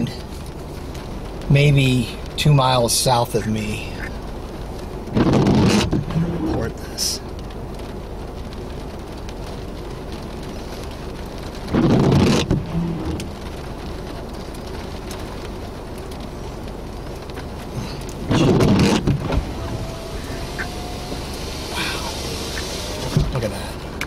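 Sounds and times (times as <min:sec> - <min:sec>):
steady rain: 0:00.0 - 0:24.0
wind: 0:00.0 - 0:24.0
loud burst of noise: 0:18.6 - 0:23.3.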